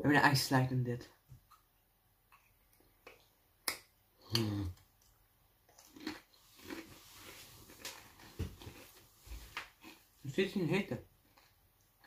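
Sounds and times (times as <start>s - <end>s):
low vocal sound: 4.2s - 4.8s
chip crunching: 5.7s - 8.8s.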